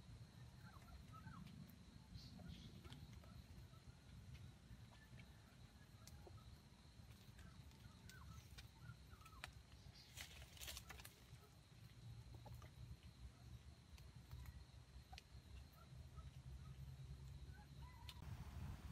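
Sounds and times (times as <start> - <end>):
soft bird chirps: 0.2 - 13.6.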